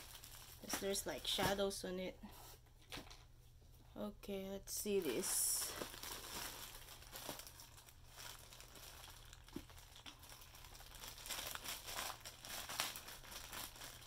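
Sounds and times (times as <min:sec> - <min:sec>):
plastic bag crinkling: 0:00.0 - 0:01.8, 0:04.7 - 0:14.0.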